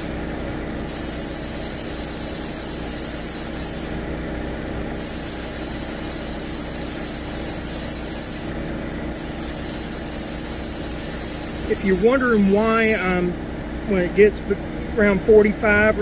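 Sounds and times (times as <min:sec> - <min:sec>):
car engine running: 0:00.0 - 0:16.0
refrigerant hissing from hose: 0:00.8 - 0:04.0, 0:05.0 - 0:08.6, 0:09.2 - 0:13.2.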